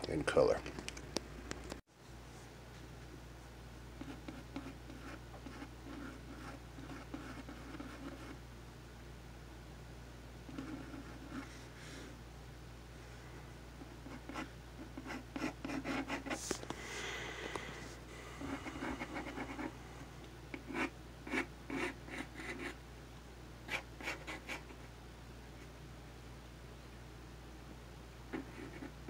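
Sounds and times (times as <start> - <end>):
pencil scratching on paper: 4.0 - 8.4, 10.5 - 11.7, 14.0 - 16.5, 18.4 - 19.7, 20.6 - 22.8, 28.3 - 29.0.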